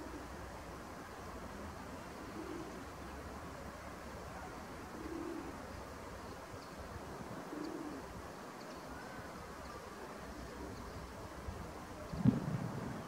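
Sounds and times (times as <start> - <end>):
dove cooing: 2.2 - 2.8, 4.9 - 5.6, 7.1 - 8.2.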